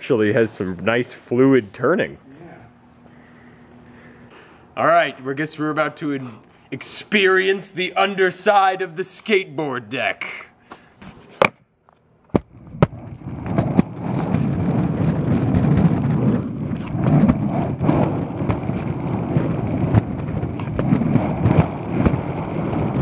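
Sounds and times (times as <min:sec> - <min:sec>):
skateboard wheels rumbling on concrete: 0:12.3 - 0:23.0.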